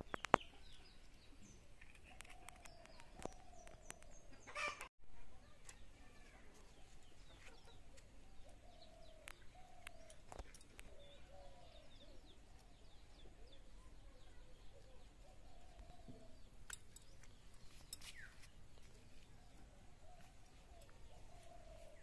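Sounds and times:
small birds chirping: 0:00.0 - 0:22.0
chickens clucking: 0:04.3 - 0:04.9, 0:07.2 - 0:09.4.

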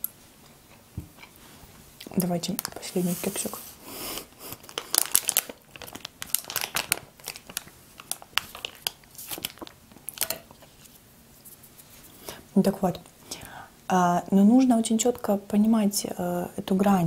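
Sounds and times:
paper muffin liner crinkling: 0:04.6 - 0:11.0.

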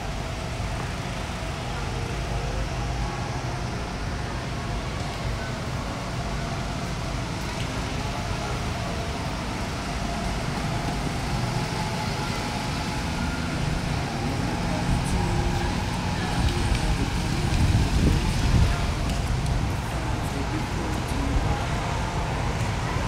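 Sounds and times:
motor vehicle rumble: 0:00.0 - 0:23.0.

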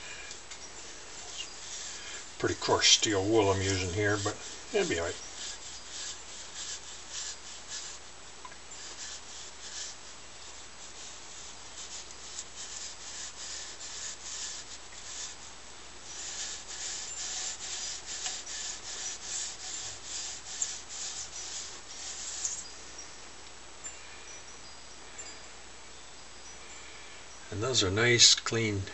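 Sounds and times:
steel wool scrubbing metal: 0:00.8 - 0:08.1, 0:08.7 - 0:22.7.

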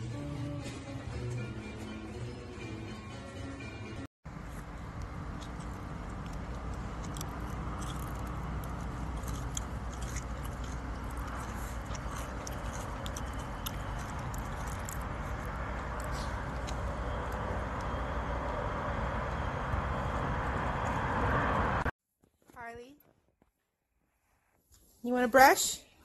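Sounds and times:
low outdoor rumble: 0:04.3 - 0:21.9.

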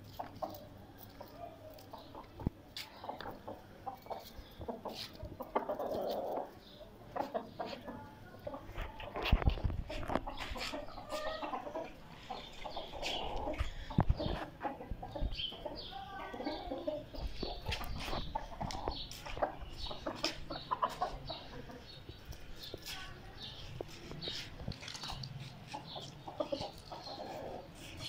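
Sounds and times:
chickens clucking: 0:00.0 - 0:28.0.

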